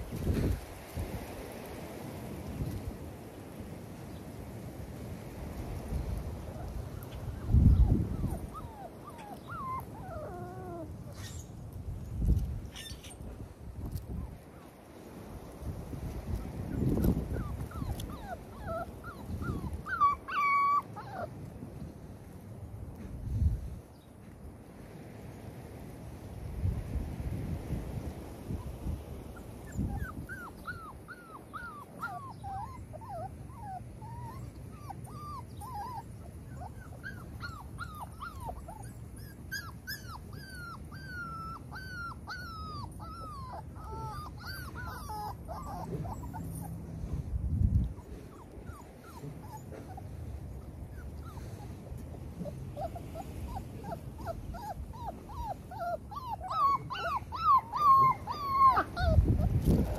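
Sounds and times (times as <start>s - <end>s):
wind rumble on microphone: 0.0s - 3.2s, 4.8s - 22.1s, 22.8s - 25.0s, 26.2s - 59.9s
puppies whimpering and whining: 6.4s - 11.6s, 12.7s - 13.3s, 16.2s - 21.5s, 28.6s - 59.9s.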